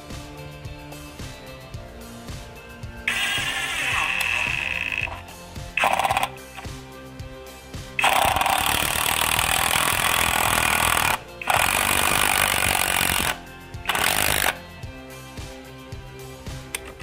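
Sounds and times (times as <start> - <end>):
impact driver driving screw into wood: 3.1 - 5.2, 5.8 - 6.3, 8.0 - 14.6.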